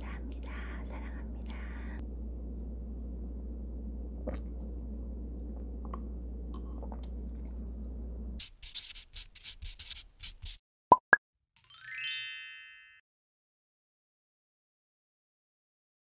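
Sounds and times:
low hum: 0.0 - 8.4
pen scratching on paper: 8.4 - 10.6.

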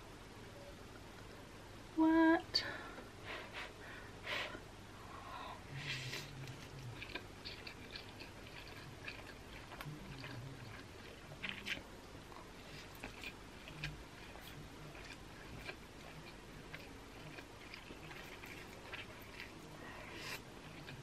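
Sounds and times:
slurping and chewing noodles: 5.8 - 21.0.

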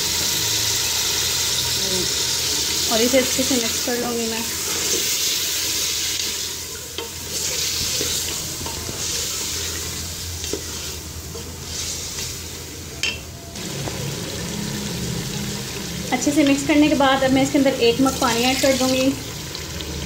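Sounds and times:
food sizzling in hot oil: 0.0 - 20.0.

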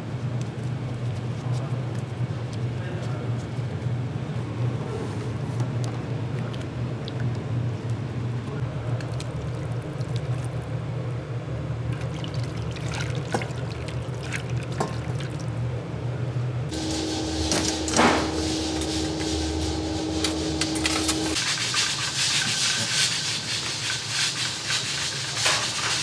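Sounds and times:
steady low hum: 0.0 - 21.4
liquid pouring and splashing: 8.8 - 10.8, 11.8 - 15.6.

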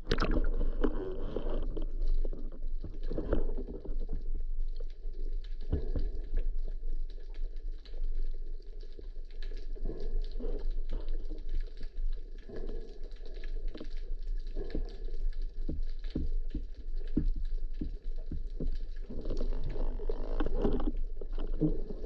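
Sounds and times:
small underwater clicks and crackles: 0.0 - 22.0
underwater water rumble: 0.0 - 22.0.

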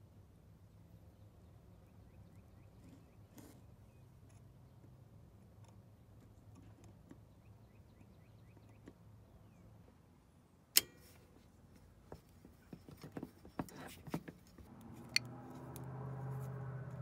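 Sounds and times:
faint bird chirps: 0.7 - 4.9, 7.1 - 9.8
sharp metallic click: 10.7 - 11.3.

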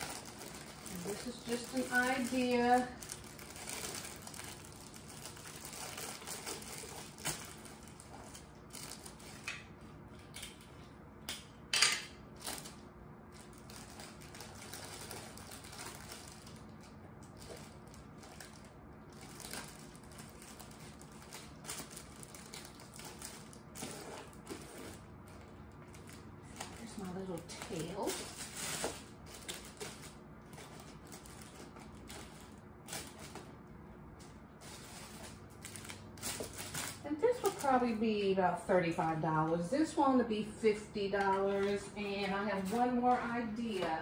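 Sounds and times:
cellophane crinkling: 0.0 - 10.9, 12.3 - 38.3, 41.1 - 44.0.

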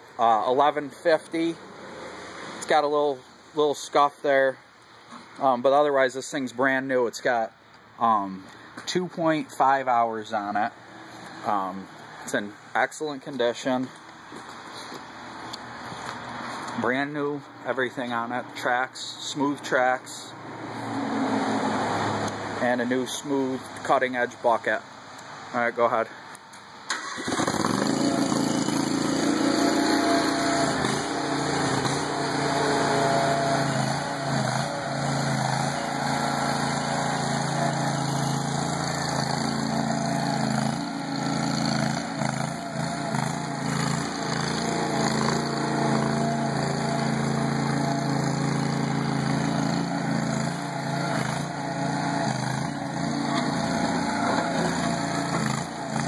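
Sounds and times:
skid steer engine running: 27.3 - 56.0.

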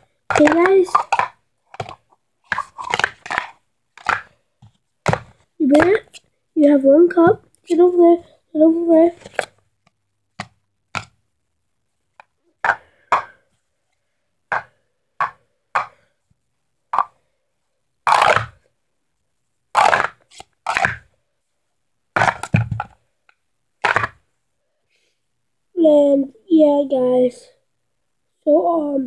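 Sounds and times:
plastic cups clacking: 0.0 - 4.4, 5.0 - 6.2, 12.2 - 13.5, 14.5 - 16.1, 17.0 - 17.2, 18.1 - 18.6, 19.8 - 21.1, 22.2 - 23.0, 23.8 - 24.2
plastic cups clattering: 0.0 - 4.4, 12.2 - 13.4, 14.5 - 16.1, 17.0 - 17.2, 18.1 - 18.6, 19.8 - 21.1, 22.2 - 23.0, 23.8 - 24.2.

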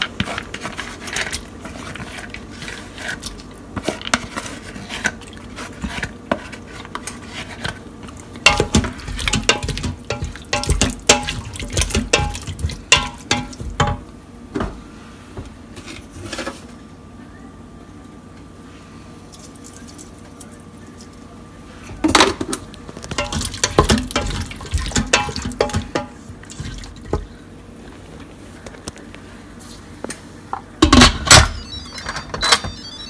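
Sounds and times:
wooden spoon stirring stew in pot: 8.4 - 14.0, 23.2 - 27.3.

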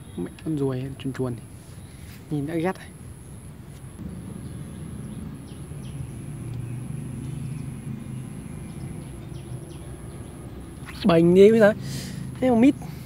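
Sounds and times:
distant vehicle engine hum: 0.0 - 13.0
steady high-pitched whine: 2.0 - 10.7
faint bird chirps: 3.2 - 11.2.

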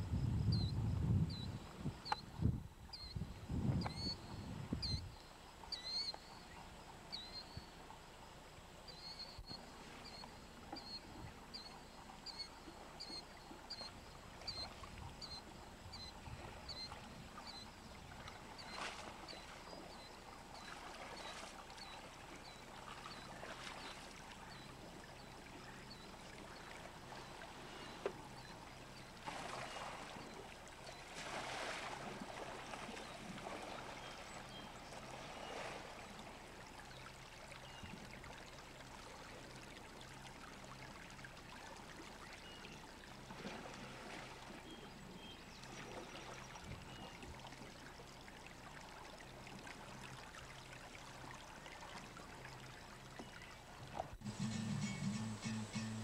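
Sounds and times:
paddle strokes in water: 8.8 - 54.4.

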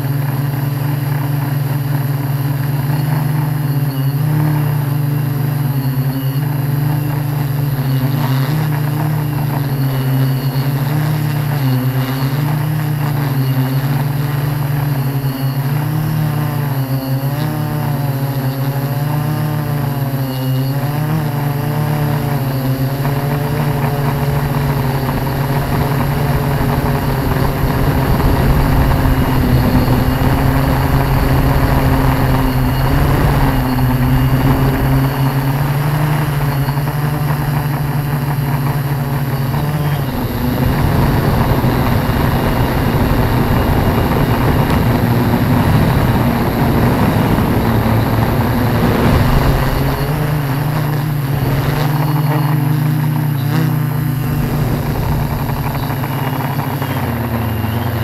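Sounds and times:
drone propellers humming: 0.0 - 58.0
wind rush: 23.1 - 56.8.

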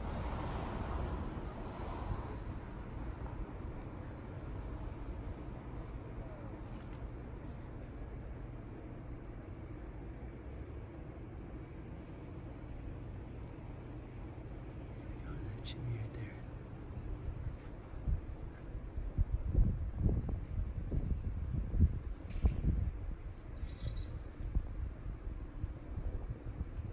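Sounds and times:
steady low rumble: 0.0 - 26.9
small birds chittering: 1.1 - 26.9.

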